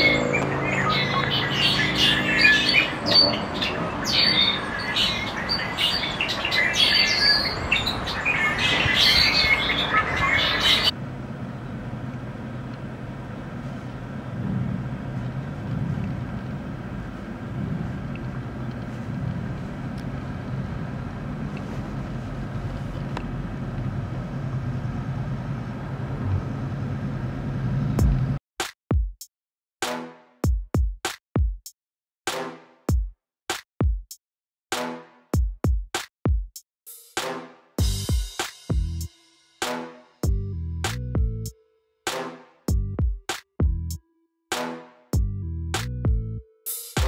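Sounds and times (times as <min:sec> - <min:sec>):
small birds chirping: 0:00.0 - 0:10.9
street noise: 0:00.0 - 0:28.4, 0:37.2 - 0:41.5.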